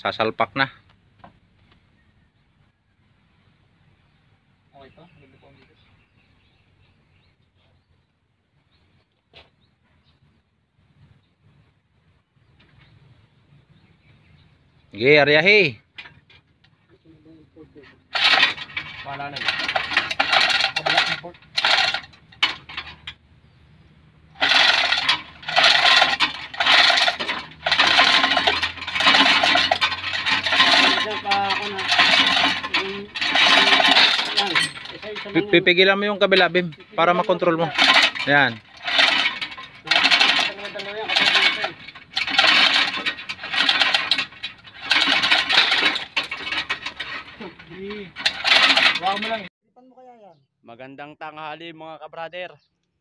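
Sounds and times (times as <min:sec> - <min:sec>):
hoist chain rattling: 0:18.1 - 0:23.2, 0:24.2 - 0:49.5.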